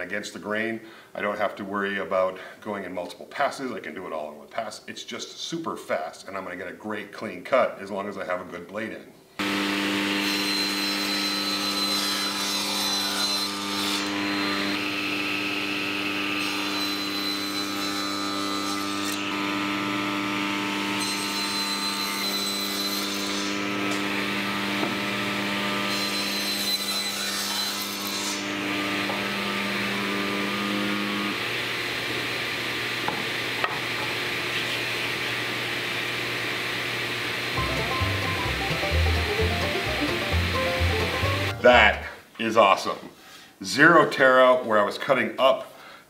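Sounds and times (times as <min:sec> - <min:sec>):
saw blade cutting wood: 0:09.4 - 0:19.6, 0:25.8 - 0:29.4
table saw motor whine: 0:09.4 - 0:27.7.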